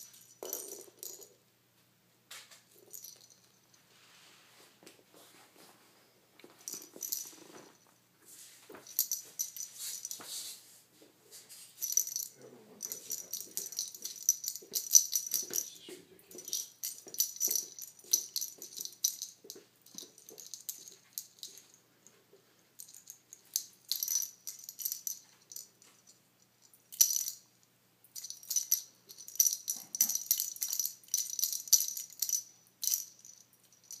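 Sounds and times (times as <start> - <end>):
toy ball rattling: 0.0 - 1.4, 2.7 - 3.7, 6.7 - 7.8, 8.8 - 10.2, 11.8 - 21.8, 22.8 - 34.0.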